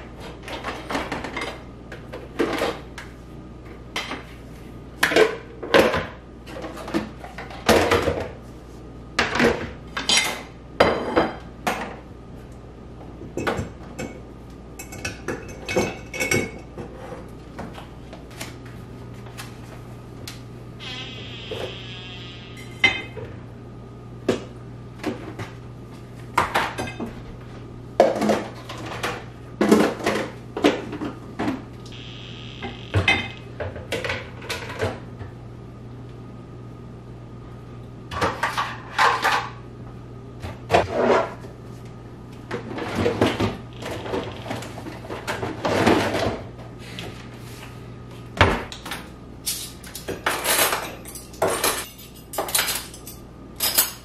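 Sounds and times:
steady low hum: 0:10.5 - 0:50.0.

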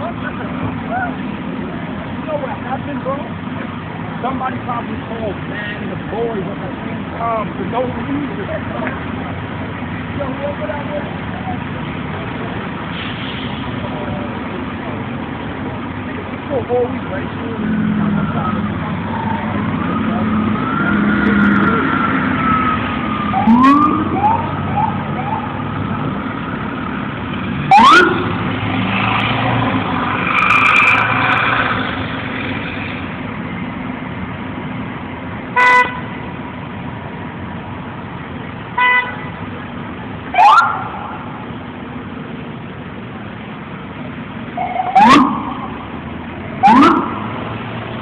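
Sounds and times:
car engines running and idling: 0:00.0 - 0:48.0
street traffic: 0:00.0 - 0:48.0
police siren whoops: 0:20.1 - 0:25.6, 0:27.7 - 0:28.3, 0:40.4 - 0:41.0, 0:44.6 - 0:45.7, 0:46.6 - 0:47.2
horn blasts: 0:35.6 - 0:36.1, 0:38.8 - 0:39.3.

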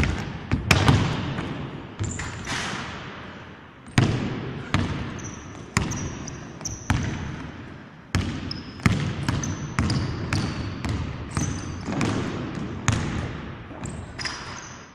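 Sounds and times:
basketball bouncing on hardwood floor: 0:00.0 - 0:02.2, 0:03.9 - 0:07.3, 0:08.1 - 0:13.4
sneaker squeaks: 0:02.0 - 0:02.7, 0:04.7 - 0:07.5, 0:08.1 - 0:12.2, 0:13.7 - 0:14.9.

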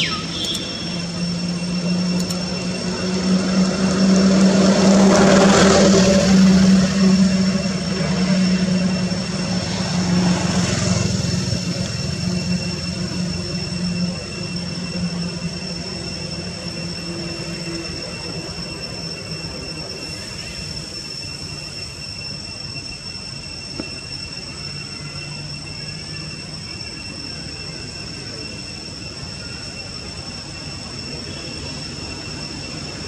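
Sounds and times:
thin high-pitched tone: 0:00.0 - 0:03.8
distant engine drone: 0:00.0 - 0:33.0.

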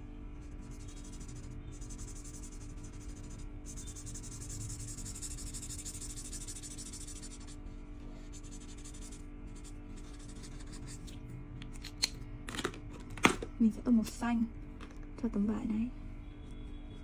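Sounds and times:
quiet background music: 0:00.0 - 0:17.0
marker scratching on paper: 0:00.4 - 0:11.2.

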